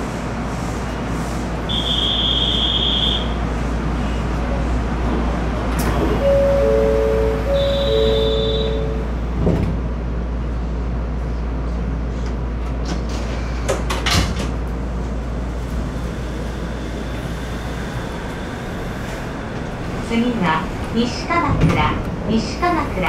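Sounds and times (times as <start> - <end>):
train low hum: 0.0 - 23.0.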